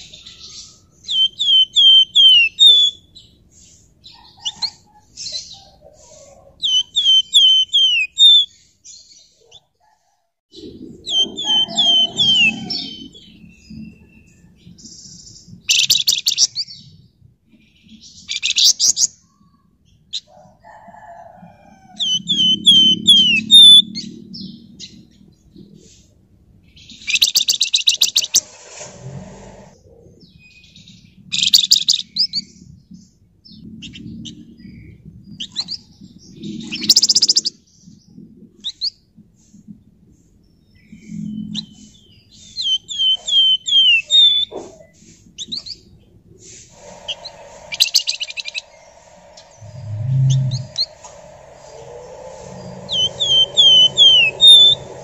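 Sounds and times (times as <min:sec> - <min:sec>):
songbird singing trills: 0:00.0 - 0:08.6, 0:10.5 - 0:17.0, 0:22.0 - 0:25.2, 0:33.8 - 0:38.1, 0:40.7 - 0:46.0, 0:47.0 - 0:55.0.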